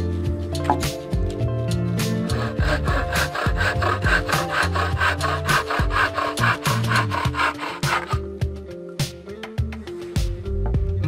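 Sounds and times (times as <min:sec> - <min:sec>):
bow saw cutting wood: 0:01.8 - 0:08.4.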